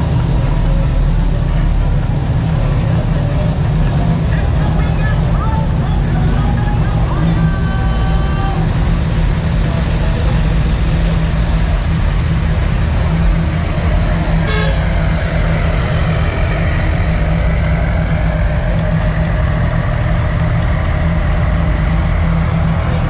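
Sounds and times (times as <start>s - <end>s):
diesel trucks rumbling past: 0.0s - 23.0s
short horn toot: 14.4s - 15.0s.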